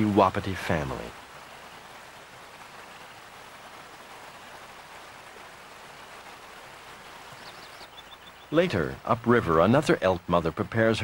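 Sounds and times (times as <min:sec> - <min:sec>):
turbulent river rushing: 0:00.0 - 0:11.0.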